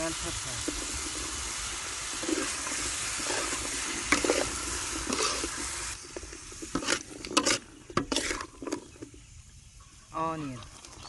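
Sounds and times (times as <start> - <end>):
vegetables sizzling in a wok: 0.0 - 9.8
spatula scraping a pan: 0.6 - 9.1.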